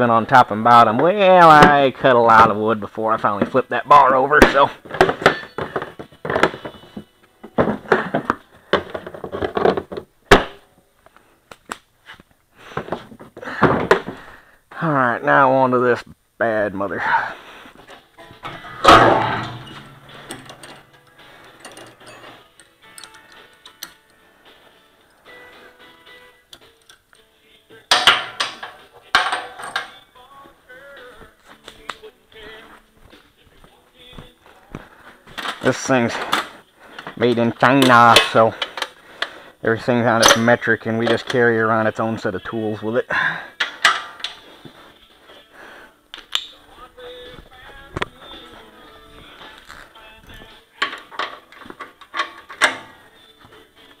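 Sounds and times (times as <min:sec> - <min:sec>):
scraping and clatter of parts: 0:04.4 - 0:10.1, 0:17.7 - 0:24.1, 0:27.9 - 0:30.0, 0:35.1 - 0:39.4, 0:48.4 - 0:53.6.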